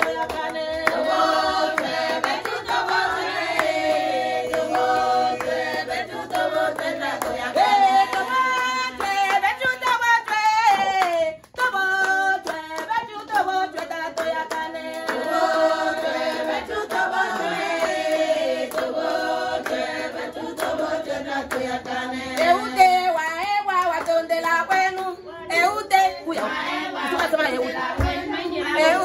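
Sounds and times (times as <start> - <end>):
hands clapping: 0.0 - 22.6, 23.4 - 25.1
group singing: 0.0 - 29.0.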